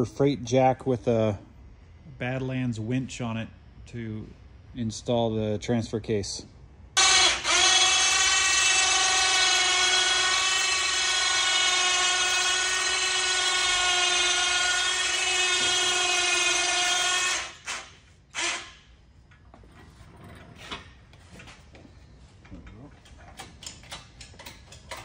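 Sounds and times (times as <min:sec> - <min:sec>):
electric winch whining: 0:07.0 - 0:18.8.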